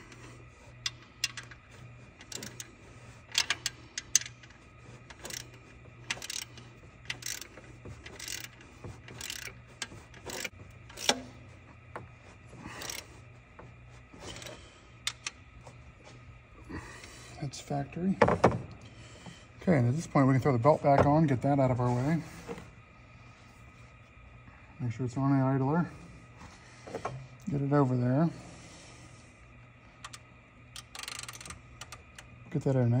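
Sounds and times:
ratchet wrench clicking: 0.0s - 11.4s, 12.8s - 13.1s, 14.2s - 15.4s, 30.0s - 32.3s
steady low hum: 0.0s - 33.0s.

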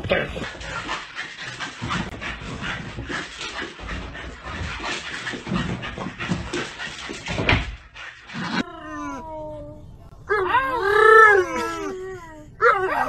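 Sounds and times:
small dog panting: 0.3s - 7.4s.

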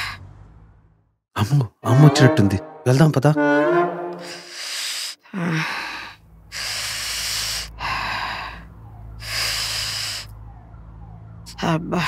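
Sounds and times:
woman breathing heavily: 4.2s - 10.4s.

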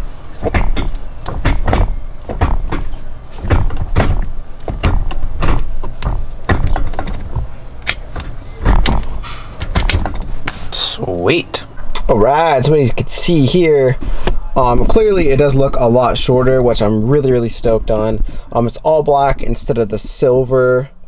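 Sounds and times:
gear shifter clunking: 0.3s - 10.3s.

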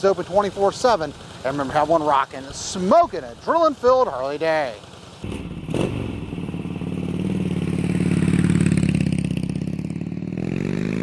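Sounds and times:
motorcycle engine pulsing: 4.8s - 11.0s.

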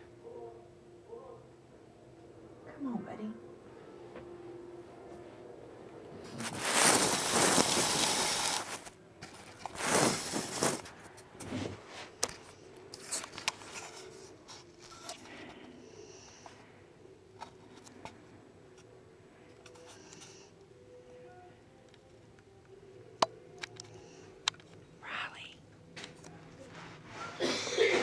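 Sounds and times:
camera rustling against carpet: 6.2s - 15.4s.

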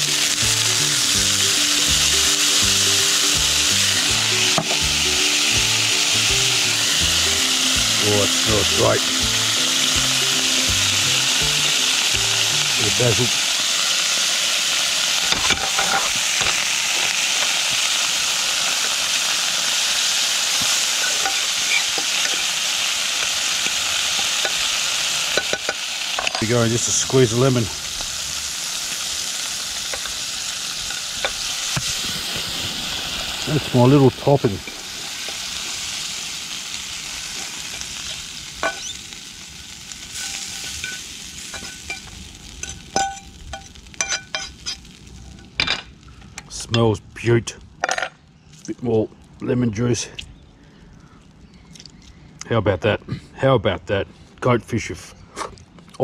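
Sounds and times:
vegetables sizzling in hot oil: 0.0s - 46.1s
metal fork scraping a pan: 21.0s - 22.5s, 38.6s - 39.0s.

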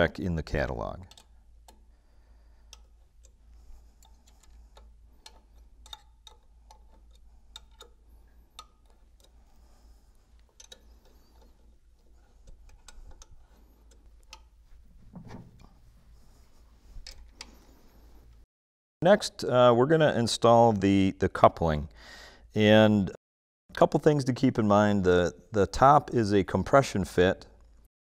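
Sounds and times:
hex key clicking in bolts: 1.0s - 1.8s.

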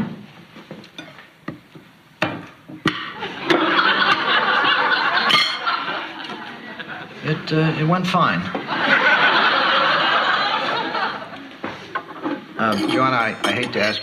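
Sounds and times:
cutlery clinking on plates: 0.8s - 1.6s, 5.2s - 6.4s, 11.9s - 14.0s
studio audience laughing: 3.2s - 7.5s, 8.5s - 12.0s.

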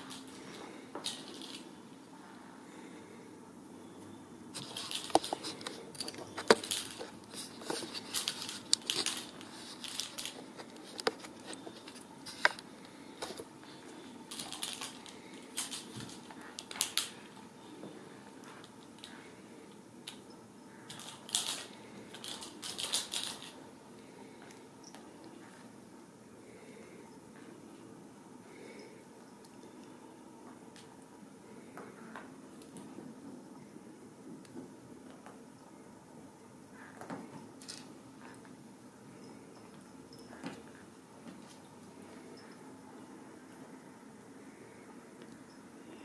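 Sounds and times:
plastic ball toy rattling: 6.0s - 11.0s, 14.3s - 17.1s, 20.9s - 23.6s.

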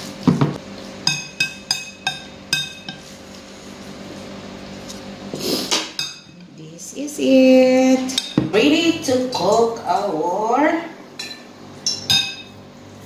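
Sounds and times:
spoon clinking against glass bowl: 1.0s - 3.0s, 6.0s - 6.4s, 11.2s - 12.6s.

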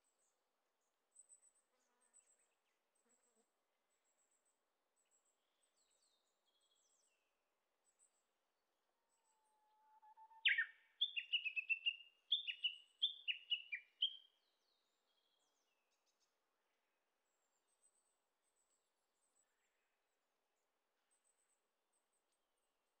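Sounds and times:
bird whistling song: 10.1s - 14.3s.

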